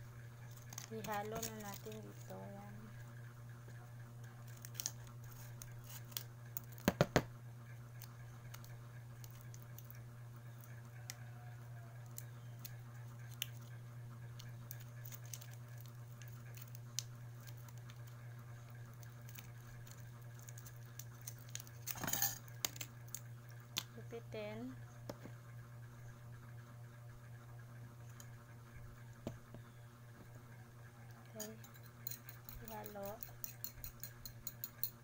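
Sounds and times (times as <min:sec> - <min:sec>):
steady low hum: 0:00.0 - 0:35.0
blister pack clicks and crinkles: 0:00.4 - 0:02.3, 0:04.2 - 0:07.0, 0:08.0 - 0:10.8, 0:12.0 - 0:23.9.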